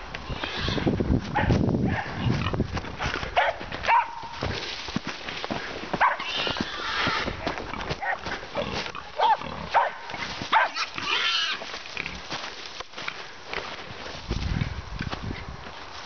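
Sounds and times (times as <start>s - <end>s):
wild boar grunting and squealing: 0.2s - 3.4s, 6.0s - 12.3s
dog barking in sharp yaps: 3.4s - 4.3s, 6.0s - 6.3s, 9.2s - 10.9s.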